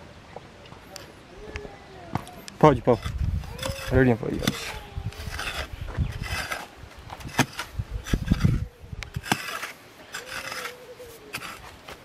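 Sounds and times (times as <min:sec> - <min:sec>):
pickaxe digging into gravelly soil: 0:02.9 - 0:12.0.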